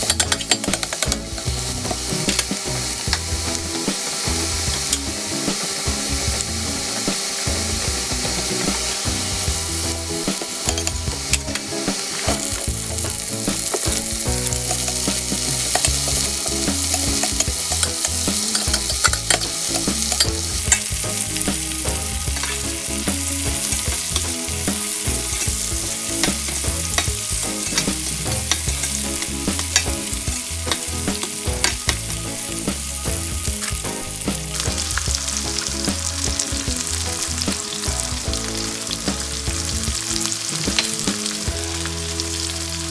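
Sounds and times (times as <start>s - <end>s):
spatula stirring in pan: 0.0s - 36.6s
vegetables sizzling in oil: 0.0s - 42.9s.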